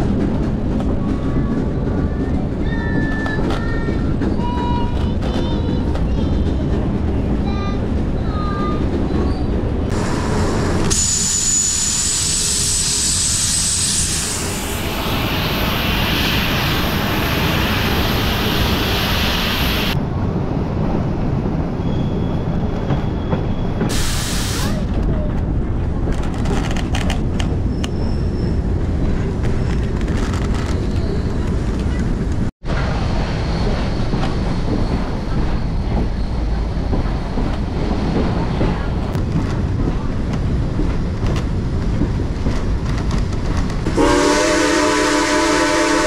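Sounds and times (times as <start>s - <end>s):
steam train rumbling: 0.0s - 46.0s
loud steam hiss: 9.9s - 20.0s, 23.9s - 24.9s.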